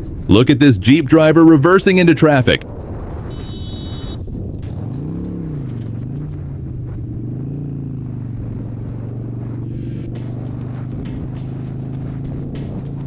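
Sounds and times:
motorcycle engine revving: 2.7 - 13.0.

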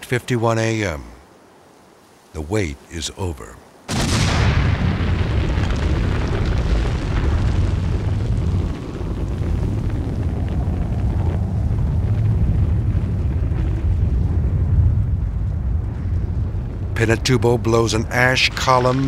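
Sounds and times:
deep rumble: 3.9 - 19.0
volcano blast: 3.9 - 19.0.

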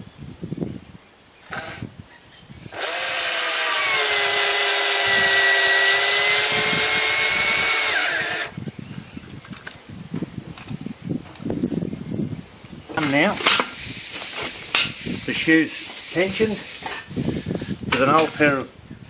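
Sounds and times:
cordless drill whining: 2.7 - 8.6.

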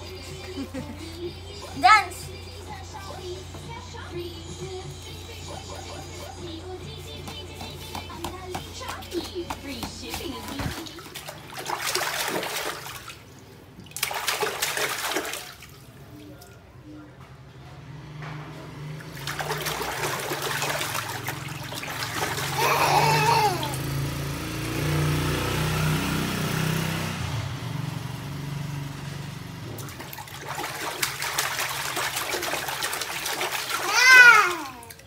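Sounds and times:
water splashing in baby bathtub: 8.2 - 16.8, 18.8 - 25.0, 29.7 - 35.0
child squealing: 22.5 - 23.8, 33.8 - 34.9.

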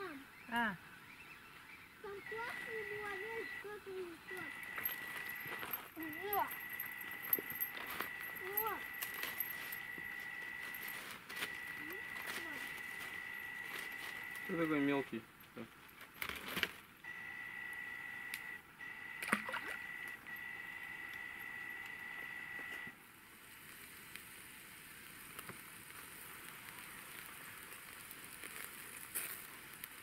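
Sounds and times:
spinning reel whining: 2.2 - 14.8, 17.1 - 22.9
soft even hiss: 22.8 - 30.0.

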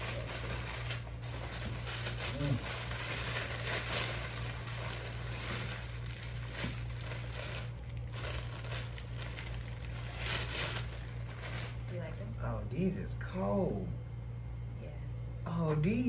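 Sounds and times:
packaging rustling and crinkling: 0.0 - 12.4
steady low hum: 0.0 - 16.0.

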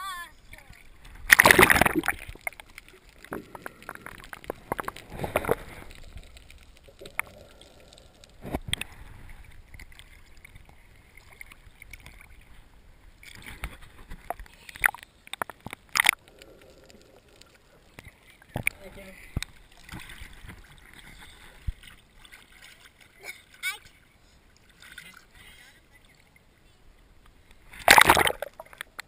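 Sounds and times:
water sloshing and gurgling: 0.4 - 29.0
sharp splashes: 1.2 - 6.4, 27.7 - 28.8.

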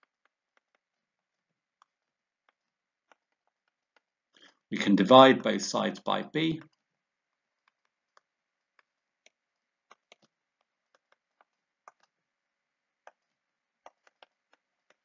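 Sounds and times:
stylus tapping on tablet screen: 0.0 - 4.2, 6.6 - 12.3, 12.9 - 15.0.

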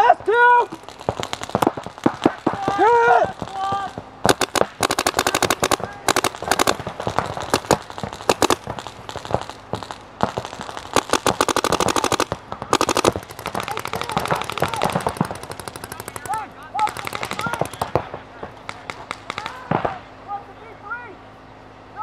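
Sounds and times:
paintball markers firing rapidly: 0.7 - 20.0.

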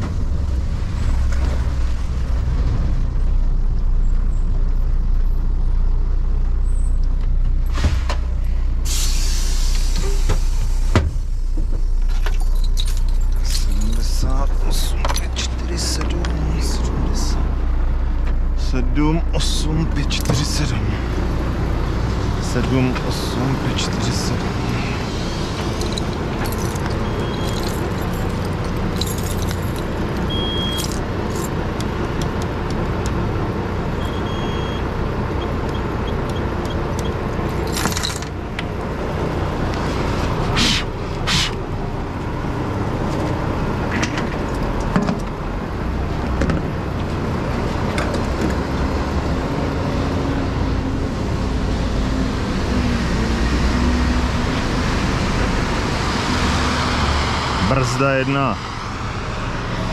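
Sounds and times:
diesel engine rumble: 0.0 - 59.9
keys jangling: 12.2 - 14.2, 25.7 - 31.5, 37.5 - 38.4
keypad beeps: 30.3 - 30.8.

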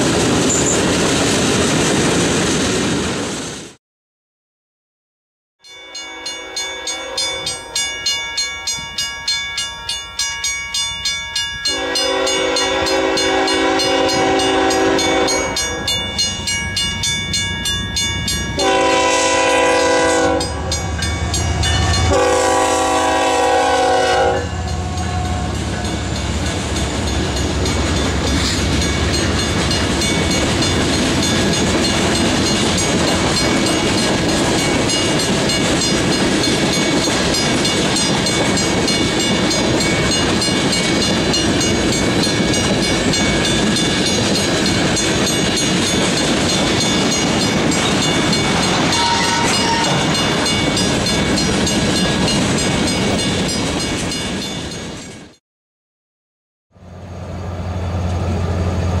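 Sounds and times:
freight train cars rolling past: 0.0 - 3.8, 5.9 - 55.4, 56.8 - 59.0
locomotive air horn blasts: 11.7 - 16.0, 18.6 - 21.0, 21.6 - 26.0, 48.8 - 50.4.

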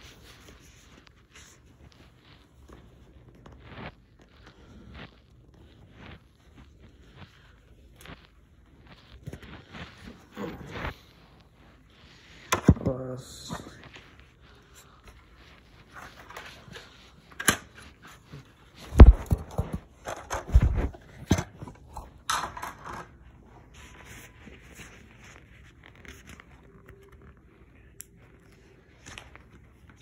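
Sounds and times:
packaging crackling and scraping: 13.8 - 30.0.

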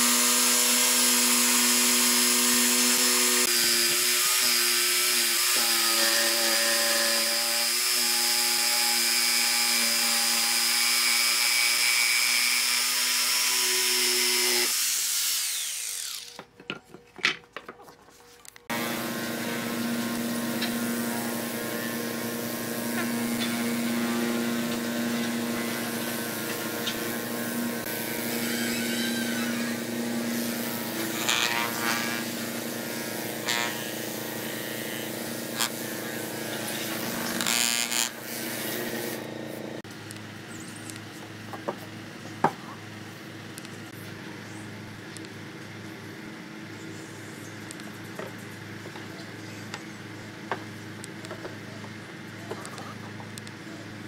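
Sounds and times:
orbital sander on wood: 0.0 - 16.3, 18.7 - 39.8.

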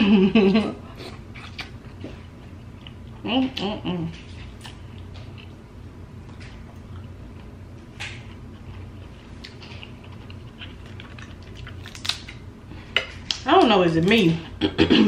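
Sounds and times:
low steady hum: 0.0 - 15.0
crab shells cracking by hand: 11.0 - 12.4.

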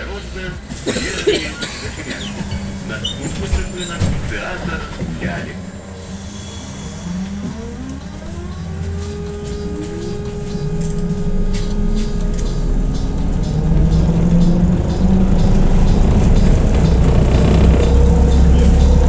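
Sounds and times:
low road rumble: 0.0 - 19.0
electric drive whine: 5.2 - 19.0.

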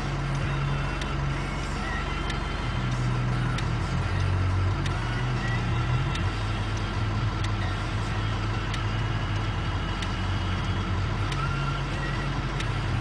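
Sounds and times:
low engine rumble: 0.0 - 13.0
faint ticks: 12.6 - 12.8.

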